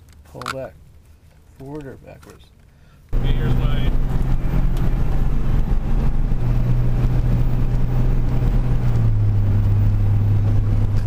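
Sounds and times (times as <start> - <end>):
diesel truck engine drone: 3.1 - 11.0.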